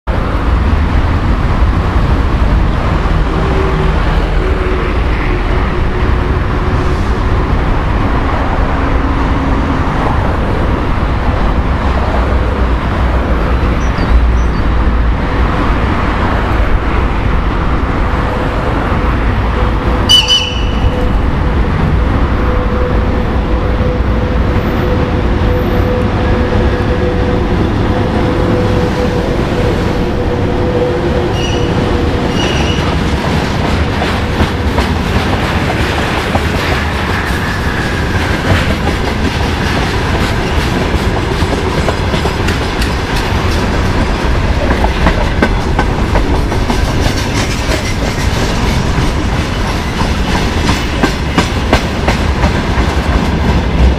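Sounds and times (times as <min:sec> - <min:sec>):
freight train low rumble: 0:00.0 - 0:53.9
electric locomotive hum: 0:00.1 - 0:53.9
short high train whistle: 0:20.1 - 0:21.0.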